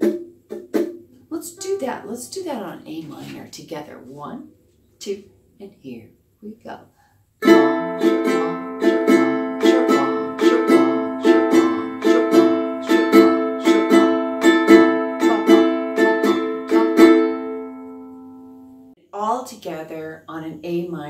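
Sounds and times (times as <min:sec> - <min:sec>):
ukulele strumming: 0:00.0 - 0:02.2, 0:07.4 - 0:18.8.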